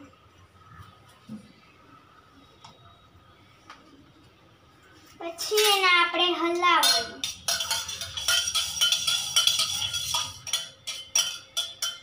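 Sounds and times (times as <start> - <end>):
spoon clinking in metal pot: 5.3 - 12.0.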